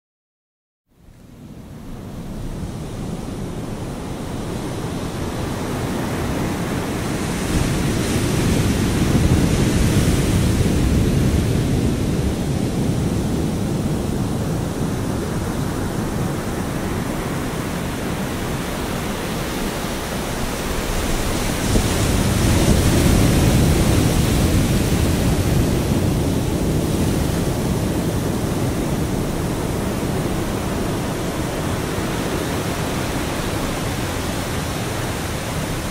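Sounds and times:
surf breaking on rocky shore: 14.6 - 35.9.

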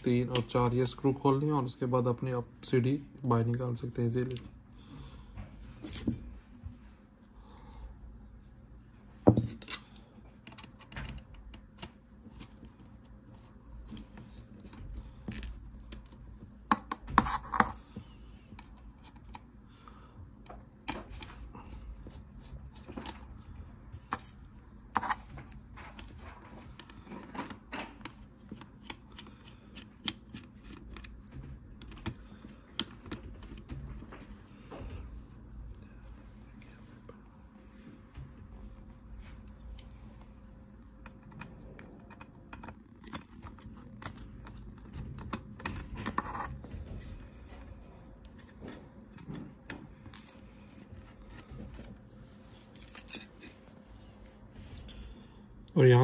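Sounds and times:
metal parts clicking and scraping: 52.4 - 53.6.

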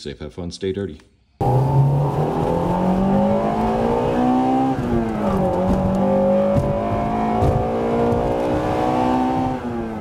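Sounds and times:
car engine accelerating: 1.4 - 10.0.

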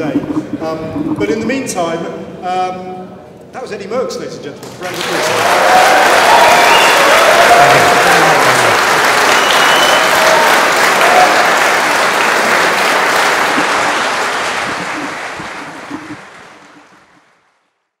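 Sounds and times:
audience applauding: 4.6 - 17.8.

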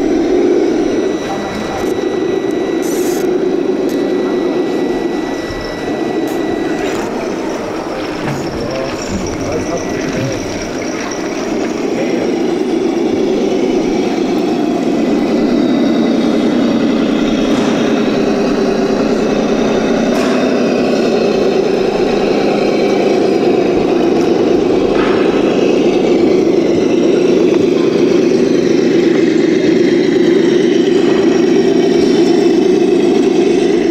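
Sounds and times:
toy car motor whirring: 2.8 - 3.3.

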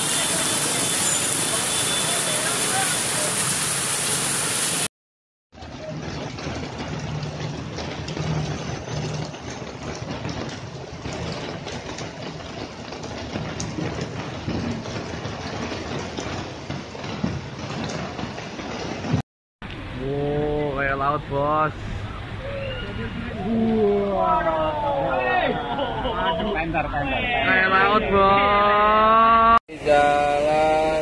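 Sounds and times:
hiss of rain and water: 0.0 - 4.9
car and motorbike engines: 19.7 - 24.8.

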